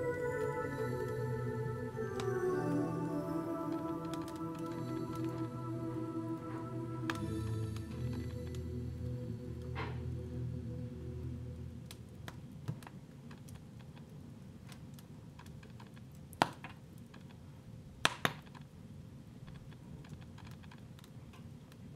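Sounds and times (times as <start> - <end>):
background music: 0.0 - 12.3.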